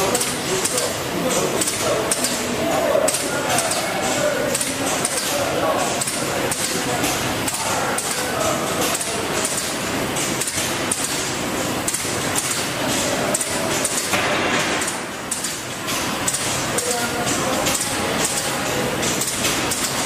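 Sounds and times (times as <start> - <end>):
mechanical knocks and clinks: 11.9 - 20.0.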